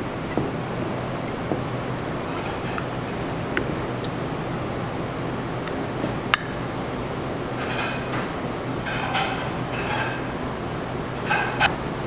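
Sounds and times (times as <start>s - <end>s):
room hum: 0.0s - 12.0s
dishes clinking: 1.3s - 3.3s, 7.6s - 10.4s, 11.2s - 11.8s.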